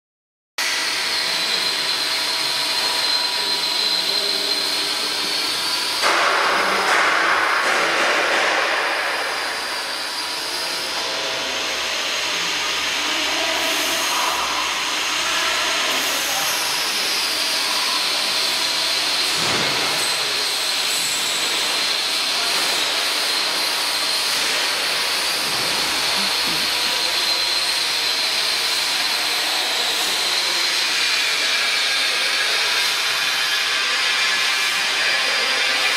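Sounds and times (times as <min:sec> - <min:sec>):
machinery hiss: 0:08.5 - 0:30.8
high motor tones: 0:09.4 - 0:29.3.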